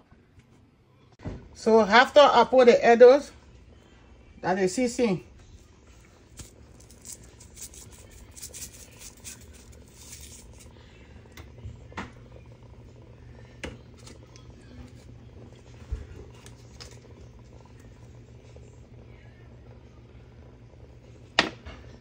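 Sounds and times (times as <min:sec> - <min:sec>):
low steady hum: 0:00.0 - 0:22.0
seasoning shaker ticks: 0:06.4 - 0:10.7.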